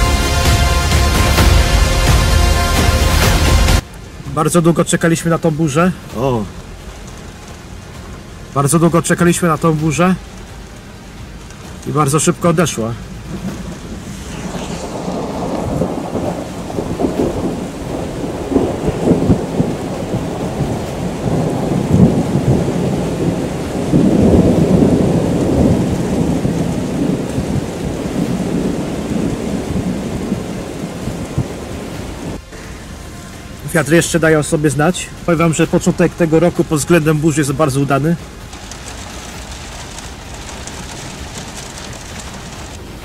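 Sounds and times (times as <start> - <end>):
thunder rumbling: 13.0 - 43.0.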